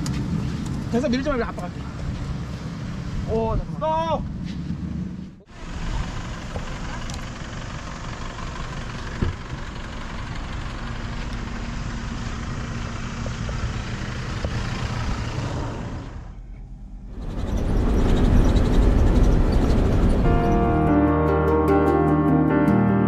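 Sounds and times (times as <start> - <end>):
vehicle engine running: 4.3 - 21.0.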